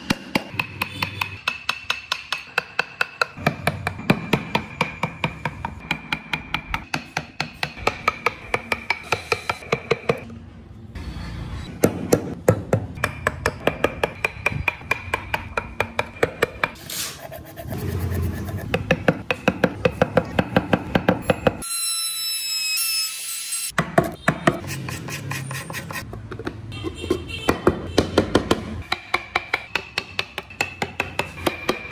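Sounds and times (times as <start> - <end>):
mallet striking chisel in wood: 0.0 - 10.2, 11.8 - 16.8, 27.5 - 31.9.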